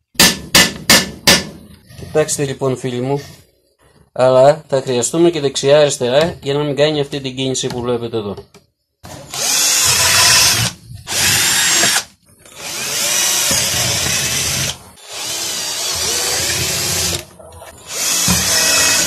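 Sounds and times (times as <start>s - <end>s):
cordless drill boring plastic pipe: 9.3s - 19.0s.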